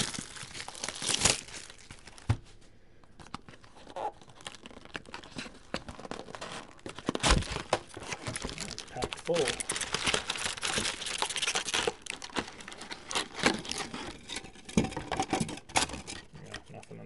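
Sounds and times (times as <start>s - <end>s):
card packaging tearing and crinkling: 0.0s - 2.4s, 3.2s - 14.4s
sharp packaging snaps: 0.0s - 2.4s, 3.2s - 13.9s.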